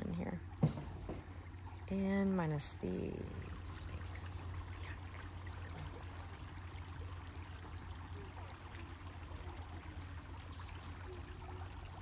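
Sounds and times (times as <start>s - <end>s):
creek trickling: 0.0s - 12.0s
bird chirping: 9.3s - 11.6s.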